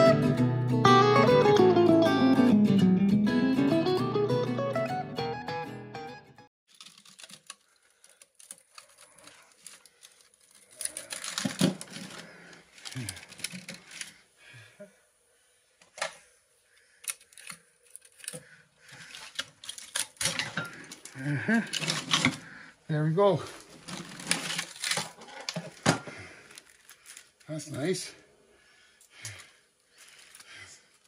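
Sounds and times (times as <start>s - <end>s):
metal pieces clicking and scraping: 6.7s - 12.2s, 17.0s - 18.5s.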